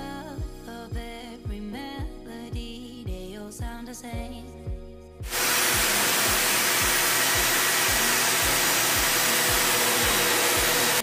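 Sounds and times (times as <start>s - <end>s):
circular saw cutting plywood: 5.3s - 11.0s.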